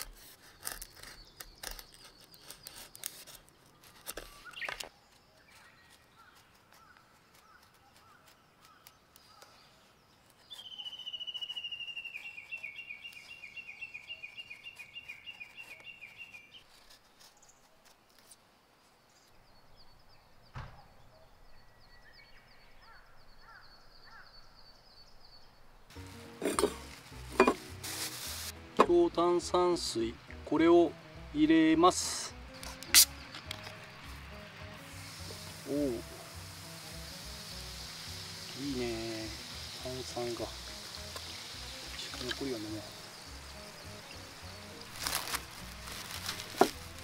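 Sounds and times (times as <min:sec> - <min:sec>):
knife shaving wooden stick: 0:00.0 - 0:18.4, 0:39.3 - 0:47.0
bird trilling: 0:10.5 - 0:16.5
thump: 0:20.5 - 0:21.0.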